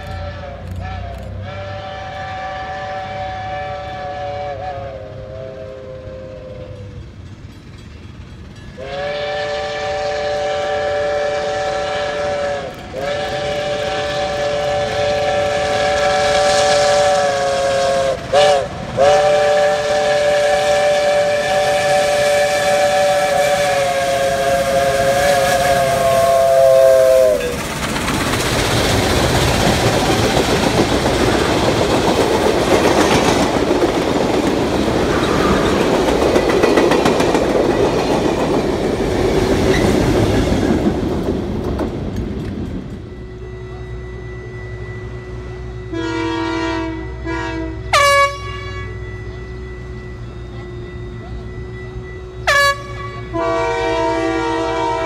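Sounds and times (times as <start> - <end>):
steam locomotive whistle: 0.0 - 7.1, 8.7 - 40.8, 42.8 - 55.0
wheels clickety-clack on rails: 0.0 - 43.4
train exhaust rushing: 0.0 - 55.0.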